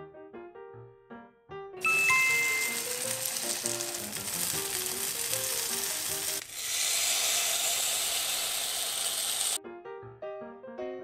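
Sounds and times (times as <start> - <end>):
light background music: 0.1 - 6.4
batter sizzling in waffle maker: 1.8 - 9.6.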